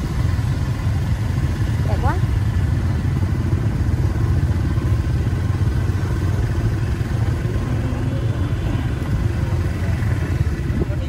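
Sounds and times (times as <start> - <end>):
motorbike engines running: 0.0 - 11.0
street traffic rumble: 0.0 - 11.0
faint voices: 7.1 - 11.0.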